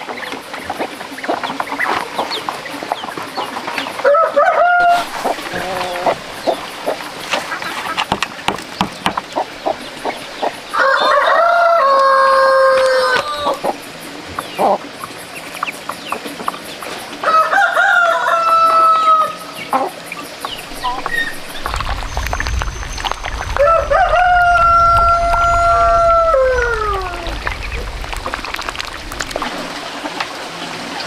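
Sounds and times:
rooster crowing: 4.0s - 6.3s, 10.7s - 13.6s, 17.2s - 19.6s, 23.6s - 27.7s
birds pecking feed clicks: 20.4s - 25.5s.

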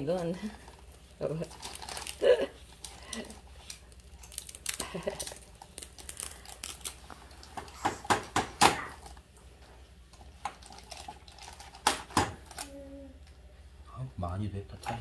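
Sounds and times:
plastic parts clicking and rustling: 1.5s - 8.0s, 10.4s - 12.7s.

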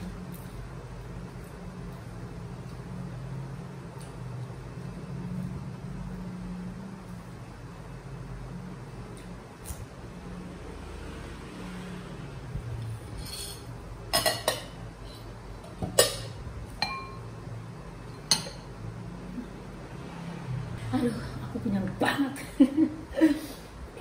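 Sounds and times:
ceramic dishes clinking: 13.2s - 14.8s, 15.8s - 17.2s.

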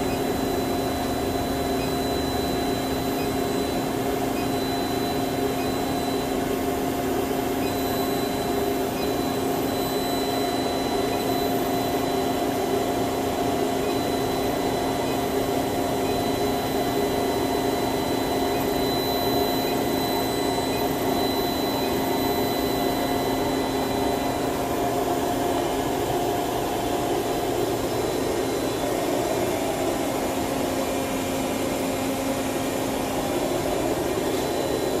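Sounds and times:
machinery whirring hum: 0.0s - 35.0s.

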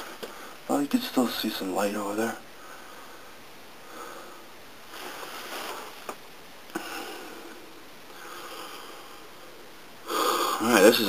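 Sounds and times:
person breathing through nose: 6.8s - 9.4s, 10.0s - 10.6s.

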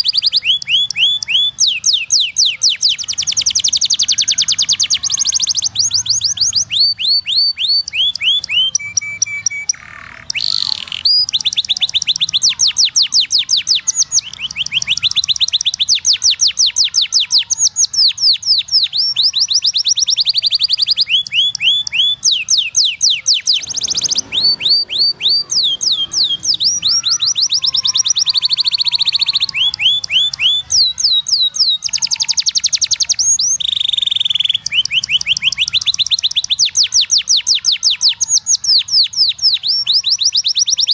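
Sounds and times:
canary singing rapid trills: 0.0s - 40.9s.

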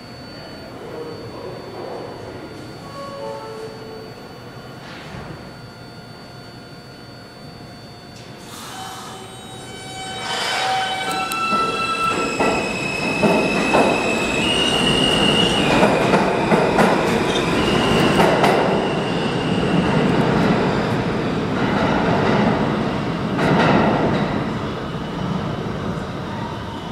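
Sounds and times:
subway train propulsion whine: 0.0s - 26.9s
steel wheels roaring on rail: 8.2s - 26.9s.

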